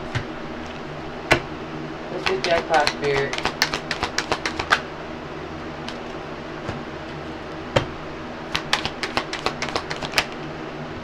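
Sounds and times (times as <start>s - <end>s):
background hum: 0.0s - 11.0s
sharp tap: 2.2s - 4.8s.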